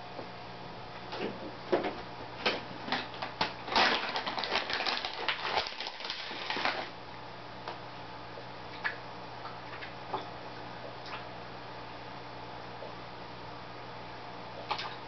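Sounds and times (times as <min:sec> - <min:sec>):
aquarium equipment hum: 0:00.0 - 0:15.0
fish food pellets pattering on water: 0:02.9 - 0:06.9, 0:14.6 - 0:15.0.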